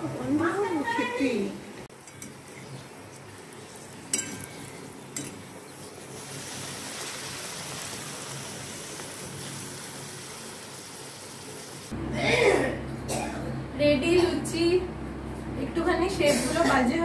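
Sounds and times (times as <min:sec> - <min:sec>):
bread deep-frying in hot oil: 0:00.2 - 0:12.0.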